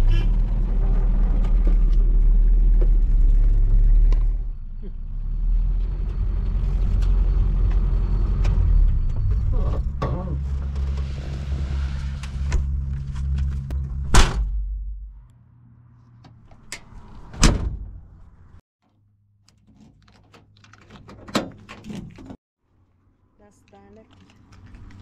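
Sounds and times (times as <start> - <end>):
car door slamming: 14.1 - 14.5.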